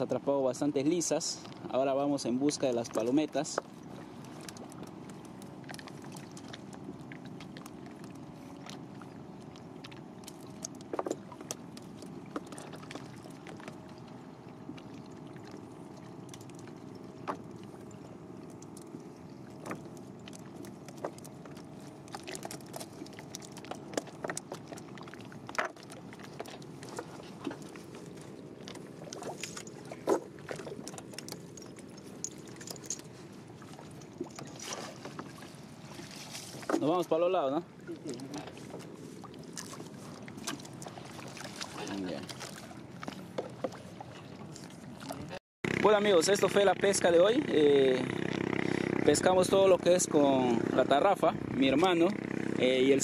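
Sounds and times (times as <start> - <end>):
boat engine humming: 0.0 - 53.0.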